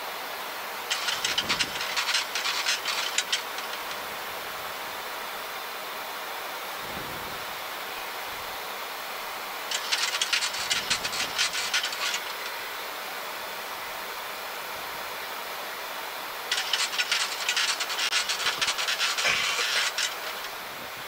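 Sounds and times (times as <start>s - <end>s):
airflow hiss: 0.0s - 21.0s
rapid mechanical clicking: 0.9s - 4.1s, 9.7s - 12.6s, 16.5s - 20.6s.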